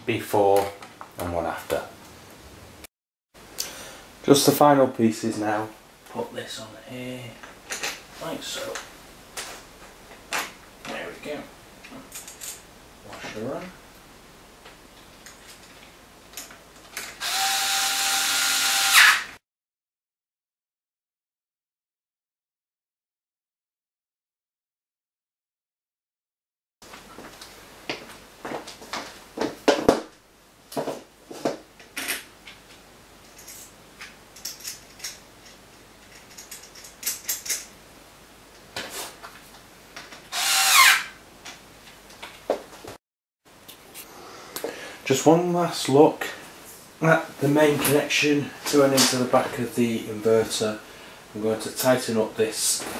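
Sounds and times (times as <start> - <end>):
small power tool motor: 17.2 - 19.3, 40.3 - 41.1
metallic clicks and rattles: 33.2 - 37.7.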